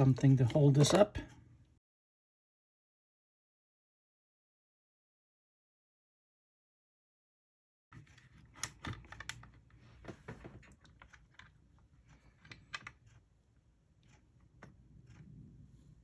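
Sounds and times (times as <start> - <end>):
plastic parts clicking and knocking: 0.0 - 1.4, 8.0 - 13.2.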